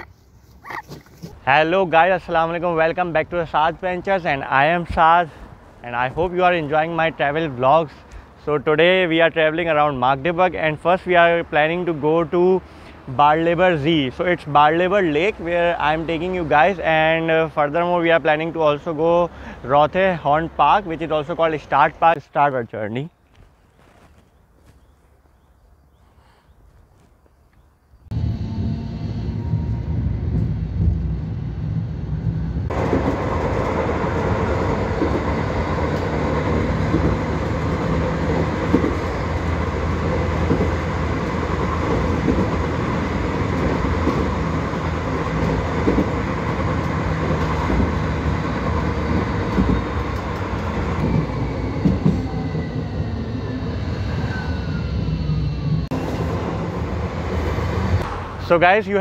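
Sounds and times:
tram wheels rumbling on rails: 1.4s - 22.1s, 28.1s - 59.0s
tram whine: 28.1s - 59.0s.

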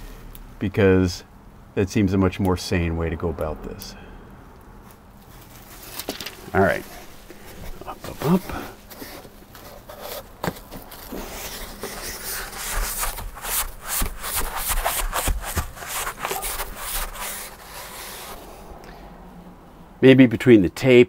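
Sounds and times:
hands rubbing foam sheet: 6.6s - 18.6s.

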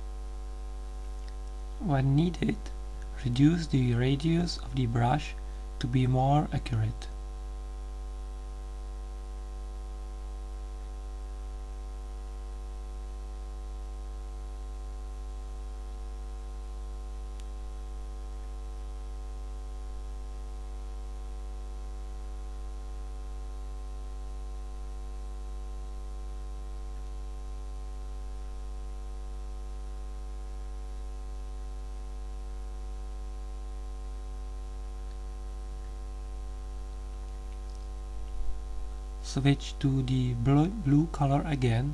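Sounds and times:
electrical mains hum: 0.0s - 41.9s.

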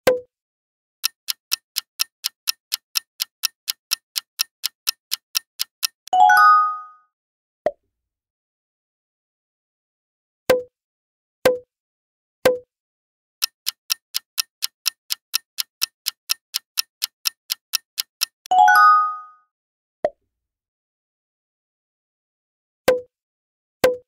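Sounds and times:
fast clock-like ticking: 1.0s - 6.1s, 13.4s - 18.5s.

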